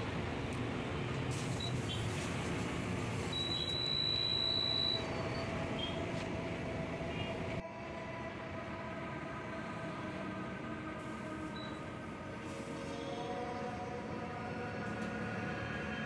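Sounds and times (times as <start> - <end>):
long high electronic beep: 3.4 - 5.3.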